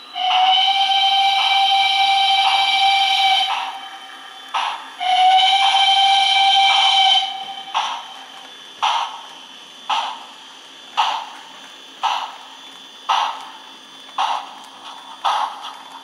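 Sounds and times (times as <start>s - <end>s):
steam whistle blasts: 0.0s - 8.3s
steam exhaust chuffs: 0.0s - 16.0s.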